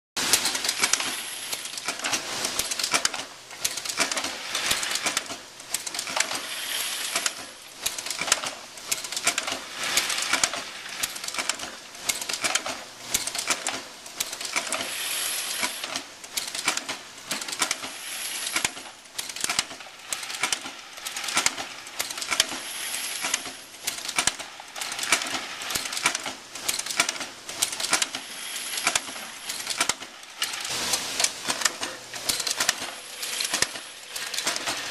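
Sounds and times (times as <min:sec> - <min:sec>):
stamping press metallic clicking: 0:07.1 - 0:14.9, 0:15.6 - 0:28.2.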